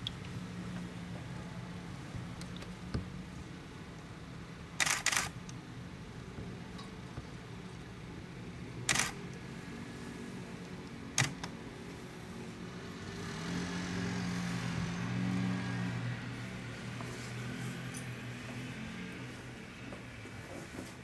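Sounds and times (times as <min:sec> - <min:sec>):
sharp clicks: 0:04.8 - 0:05.6, 0:08.9 - 0:09.2, 0:11.2 - 0:11.6.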